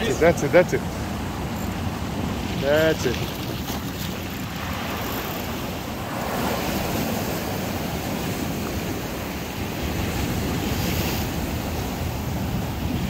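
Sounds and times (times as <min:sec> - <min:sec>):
surf washing against rocks: 0:00.0 - 0:13.0
wind buffeting microphone: 0:00.8 - 0:13.0.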